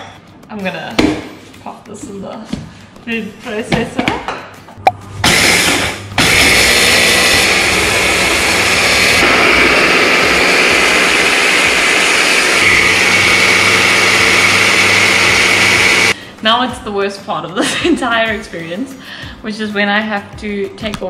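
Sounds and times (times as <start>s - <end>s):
hand blender whining: 5.2s - 16.2s.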